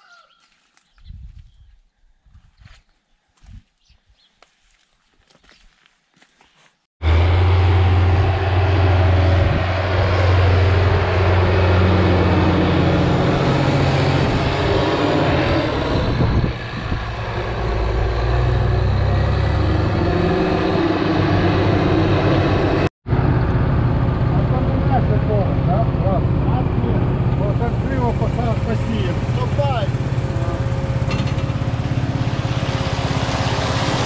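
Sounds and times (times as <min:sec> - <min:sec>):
tractor diesel engine running: 0:07.0 - 0:34.0.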